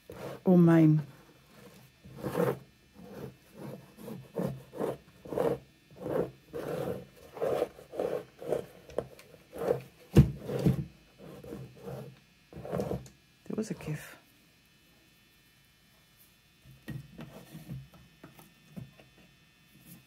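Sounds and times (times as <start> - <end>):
squeegee scraping wet canvas: 0.0 - 0.6, 1.6 - 13.1.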